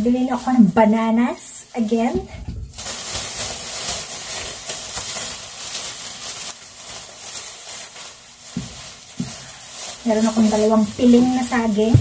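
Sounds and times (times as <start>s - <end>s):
plastic bags rustling and crinkling: 0.0s - 12.0s.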